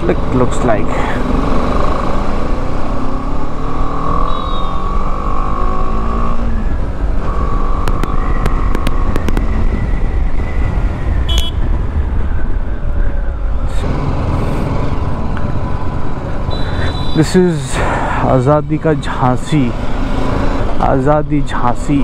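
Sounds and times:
motorcycle engine running: 1.3 - 9.8
wind rumble on microphone: 7.8 - 14.7.

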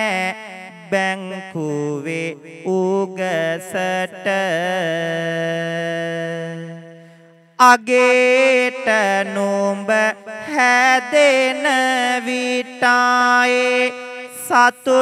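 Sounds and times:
man chanting: 0.0 - 15.0.

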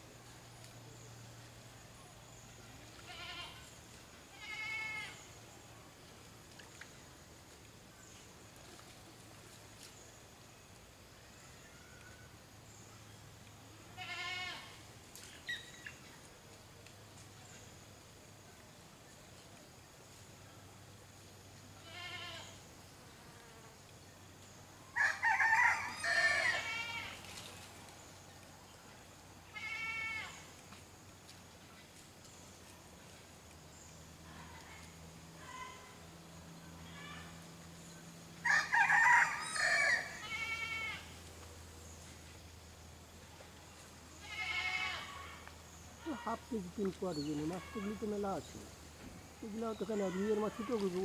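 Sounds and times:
farm animal bleating: 3.0 - 3.7, 4.3 - 5.2, 13.9 - 14.8, 21.8 - 22.6, 26.0 - 27.2, 29.5 - 30.4, 40.2 - 41.1, 44.2 - 45.4, 47.2 - 48.2
rooster crowing: 24.9 - 26.7, 38.4 - 40.3.

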